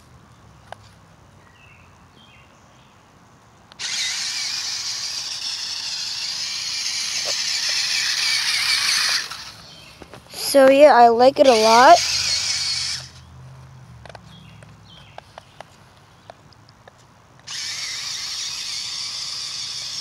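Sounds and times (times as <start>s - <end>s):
toy truck electric motor whirring: 3.7s - 13.2s, 17.4s - 20.0s.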